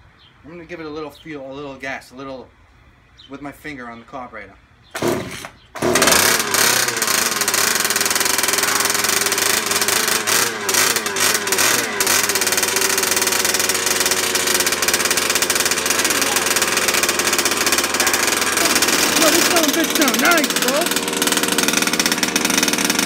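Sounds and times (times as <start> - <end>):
small two-stroke engine running: 5.0 - 23.0.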